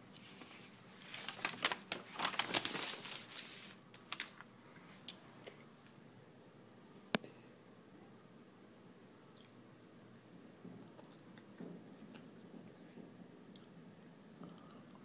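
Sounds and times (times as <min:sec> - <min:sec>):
paper rustling and crinkling: 0:00.0 - 0:04.5.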